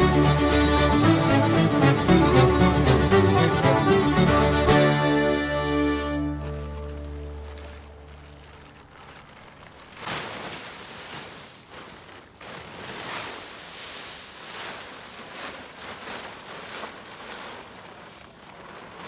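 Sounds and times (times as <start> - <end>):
plastic tarp crinkling: 0.8 - 2.5, 5.2 - 19.0
dry leaves rustling: 5.5 - 19.0.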